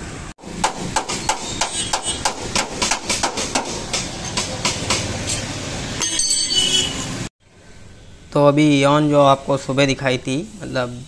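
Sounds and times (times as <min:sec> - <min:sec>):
hammer striking steel: 0:00.5 - 0:06.7.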